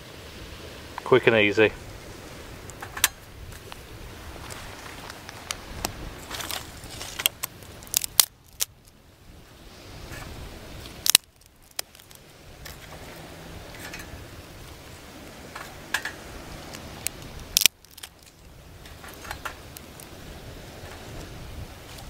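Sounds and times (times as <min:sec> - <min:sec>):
faint low background noise: 0:00.0 - 0:22.0.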